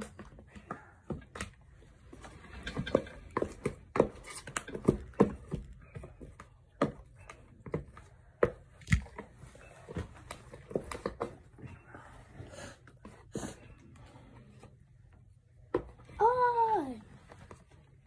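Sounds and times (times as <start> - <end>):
objects knocking and tapping: 0.0 - 11.8.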